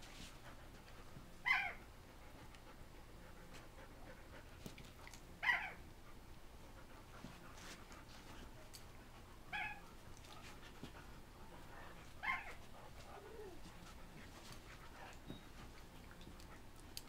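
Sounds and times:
dog yipping: 0:01.4 - 0:01.8, 0:05.4 - 0:05.8, 0:09.5 - 0:09.8, 0:12.2 - 0:12.6.

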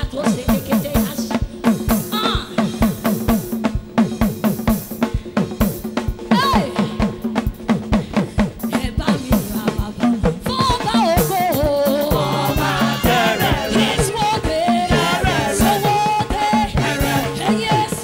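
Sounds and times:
drum kit beat: 0:00.0 - 0:18.0
person singing: 0:10.7 - 0:18.0.

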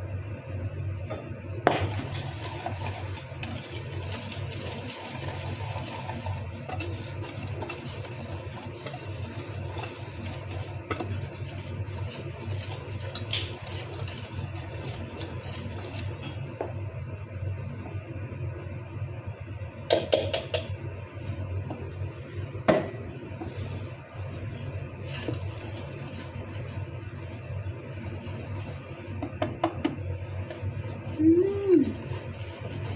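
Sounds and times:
whisk scraping metal bowl: 0:01.7 - 0:16.4, 0:23.4 - 0:32.9.

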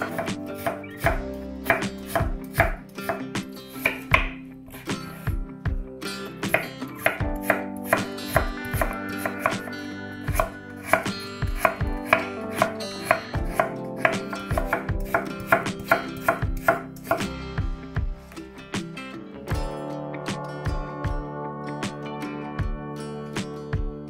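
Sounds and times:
knife chopping on wooden board: 0:00.0 - 0:03.2, 0:03.8 - 0:04.8, 0:06.5 - 0:09.7, 0:10.3 - 0:17.3
soft guitar music: 0:00.0 - 0:24.0.

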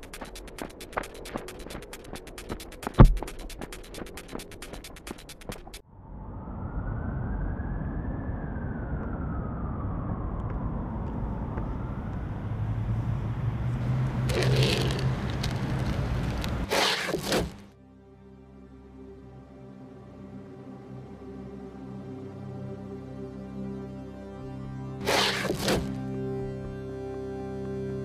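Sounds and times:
soft ambient music: 0:17.7 - 0:28.0.

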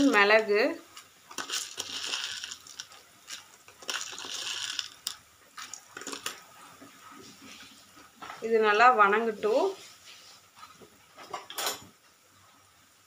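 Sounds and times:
spices scraping and rattling in pan: 0:00.9 - 0:06.5.

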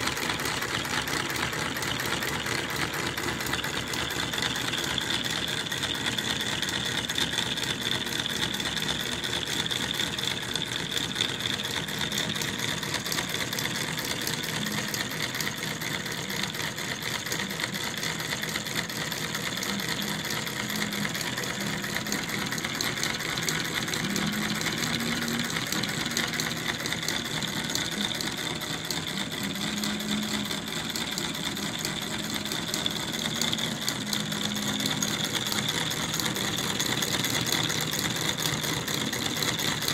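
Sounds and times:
model engine mechanical clatter: 0:00.0 - 0:39.9.

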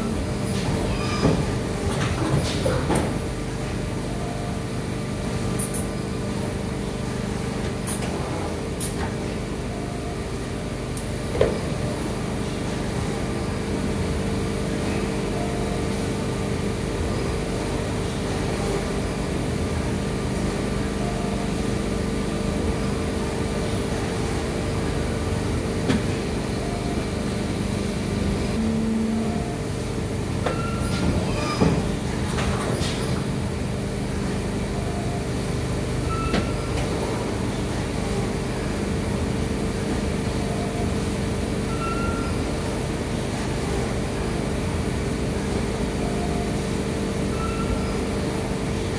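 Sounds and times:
machine motor hum: 0:21.5 - 0:30.5.

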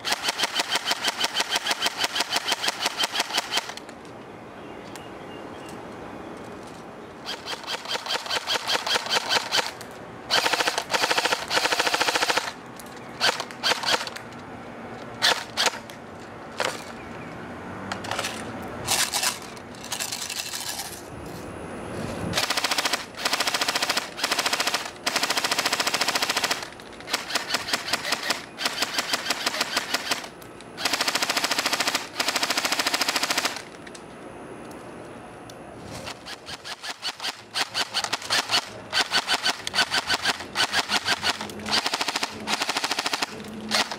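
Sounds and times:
airsoft gun firing bursts: 0:00.0 - 0:03.8, 0:07.2 - 0:12.6, 0:13.2 - 0:14.2, 0:22.4 - 0:33.7, 0:36.1 - 0:43.9.

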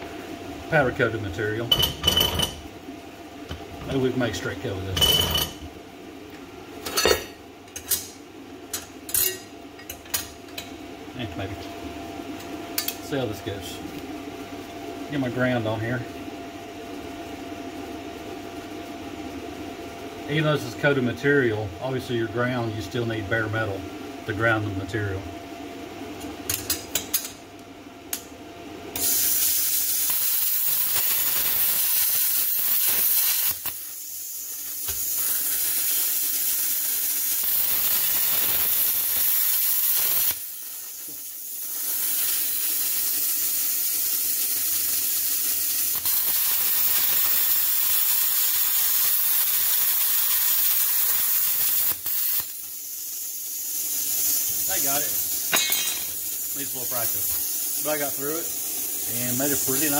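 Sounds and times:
plasma cutter hissing: 0:29.0 - 0:59.9.

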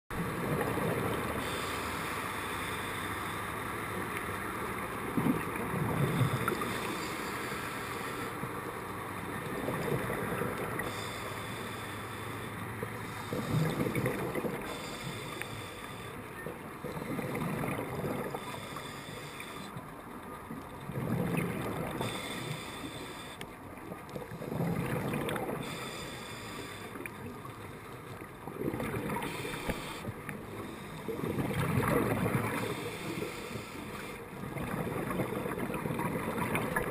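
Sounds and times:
diver breathing through regulator: 0:01.4 - 0:03.5, 0:10.8 - 0:16.2, 0:18.1 - 0:19.8, 0:21.9 - 0:23.4, 0:25.4 - 0:27.0, 0:28.9 - 0:31.3, 0:32.4 - 0:34.3.

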